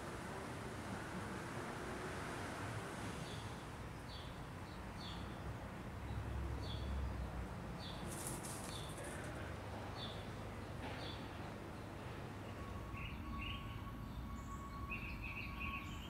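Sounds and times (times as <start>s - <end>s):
rustle of dry leaves: 7.9s - 9.5s.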